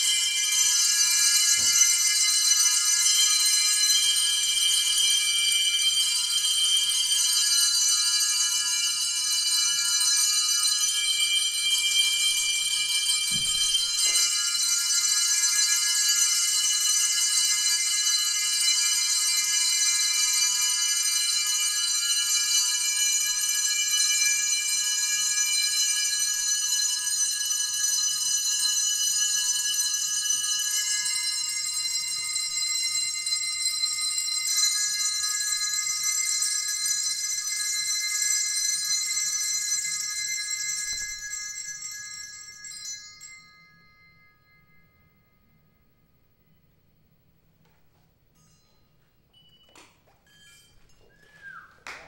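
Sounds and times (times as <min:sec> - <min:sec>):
high ringing tones: 0:48.3 - 0:51.7.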